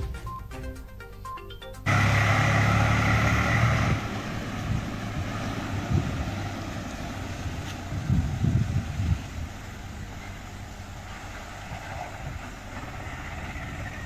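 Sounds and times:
music: 0.0 - 1.9
tractor diesel engine running: 1.8 - 14.0.

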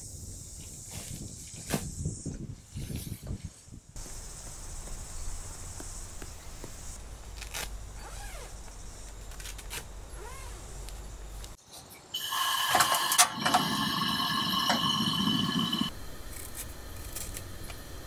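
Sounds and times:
tent fabric rustling: 7.3 - 10.9.

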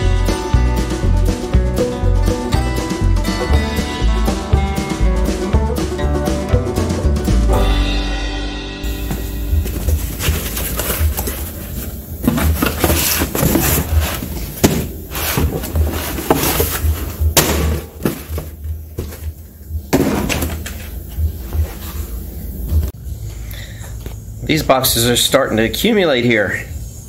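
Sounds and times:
boxes knocking on workbench: 9.0 - 20.9
cardboard flaps scraping and rustling: 9.1 - 19.4.

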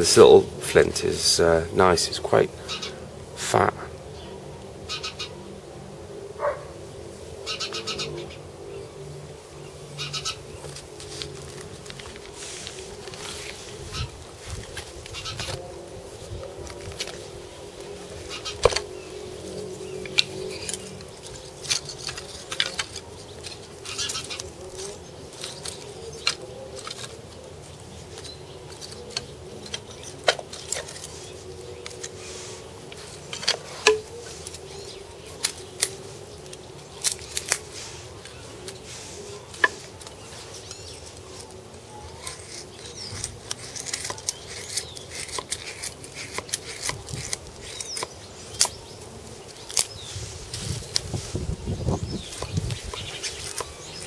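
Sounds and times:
knife blade scraping wood: 18.2 - 51.4, 52.1 - 54.0
knife and wood clicking: 20.0 - 27.2, 28.1 - 31.1, 35.3 - 38.8, 42.2 - 48.8, 52.2 - 54.0.

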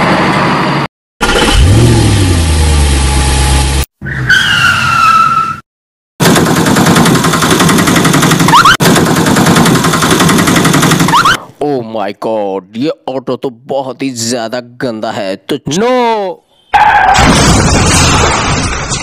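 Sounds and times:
tyre screech: 4.0 - 5.6
rattling engine-like noise: 6.2 - 11.2.

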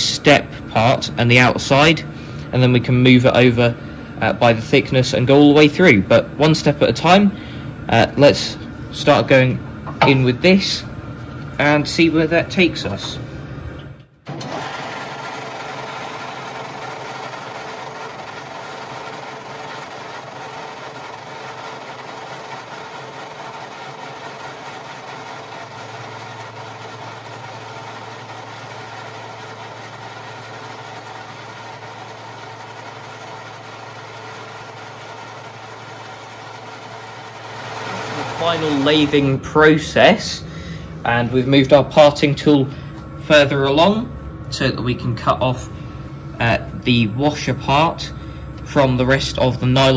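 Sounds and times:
motor hum: 0.0 - 49.9
metal lathe cutting: 14.3 - 40.1
lower hum: 37.8 - 49.9.

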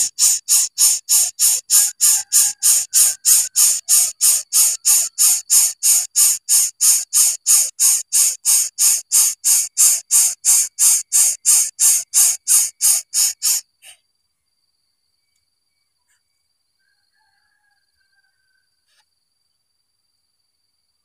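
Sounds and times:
bird nestling hissing: 0.0 - 14.0.

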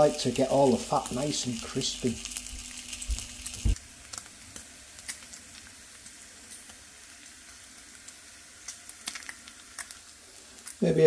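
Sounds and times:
fat popping and crackling: 0.0 - 5.4, 8.6 - 11.0
bacon sizzling in a pan: 0.0 - 11.0.

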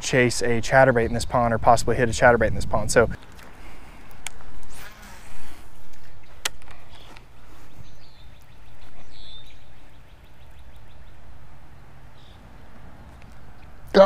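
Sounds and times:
bird chirping: 6.0 - 14.0.

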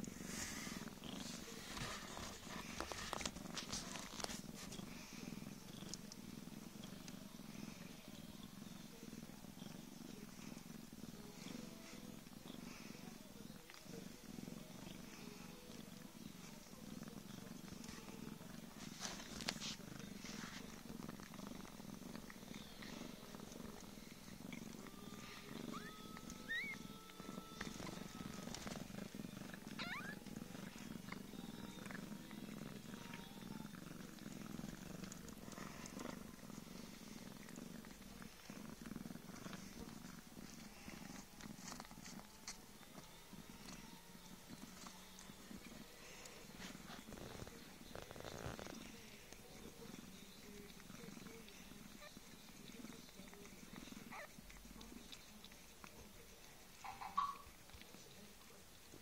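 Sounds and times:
cat purring: 0.0 - 59.0
kittens high squeaks: 25.7 - 27.5, 29.8 - 30.2.

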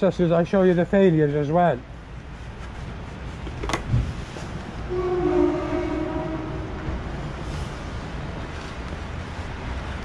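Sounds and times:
road traffic rumble: 0.0 - 10.0
horn-like tone: 4.9 - 7.0.

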